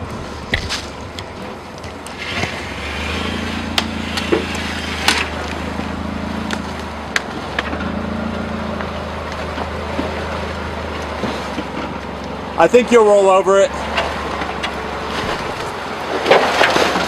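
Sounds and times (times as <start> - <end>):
rocks crunching under tyres: 0.0 - 13.0, 13.7 - 17.0
car engine pulling at low speed: 0.0 - 17.0.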